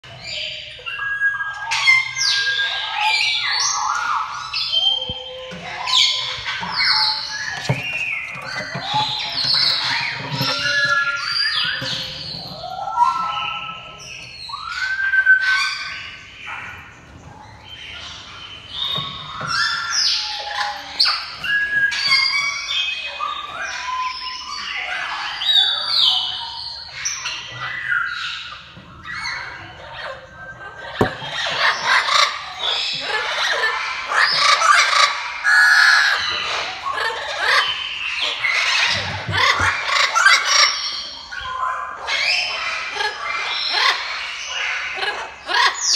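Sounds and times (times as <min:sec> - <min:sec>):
parrots squawking and whistling: 0:00.1 - 0:16.7
single knock: 0:31.0 - 0:31.5.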